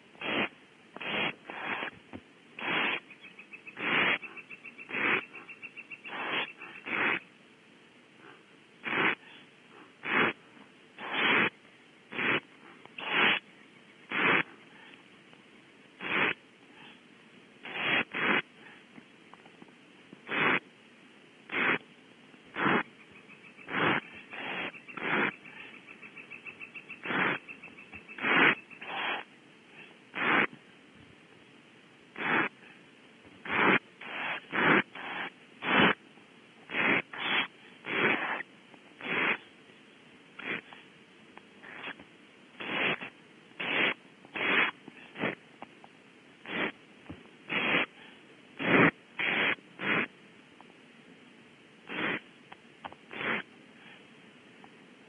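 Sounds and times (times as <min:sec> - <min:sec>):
owlets hissing begging calls: 0:00.2 - 0:02.0, 0:02.6 - 0:07.3, 0:08.8 - 0:10.4, 0:11.0 - 0:11.5, 0:12.1 - 0:12.4, 0:13.0 - 0:14.9, 0:16.0 - 0:17.0, 0:17.6 - 0:18.4, 0:20.3 - 0:20.6, 0:21.5 - 0:21.8, 0:22.5 - 0:29.4, 0:30.2 - 0:30.5, 0:32.2 - 0:32.6, 0:33.4 - 0:36.0, 0:36.7 - 0:39.5, 0:40.4 - 0:40.8, 0:41.6 - 0:42.0, 0:42.6 - 0:45.4, 0:46.4 - 0:46.8, 0:47.5 - 0:47.9, 0:48.6 - 0:50.1, 0:51.9 - 0:52.2, 0:53.1 - 0:53.4.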